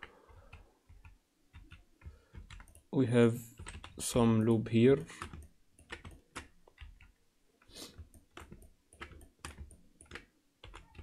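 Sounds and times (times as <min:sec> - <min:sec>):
keyboard and mouse clicking: 0:00.0 - 0:02.9, 0:03.6 - 0:11.0.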